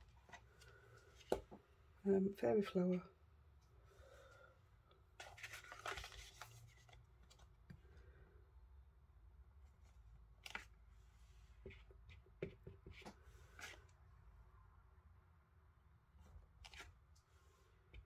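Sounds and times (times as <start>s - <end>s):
paper rustling: 5.2s - 7.5s, 16.6s - 17.0s.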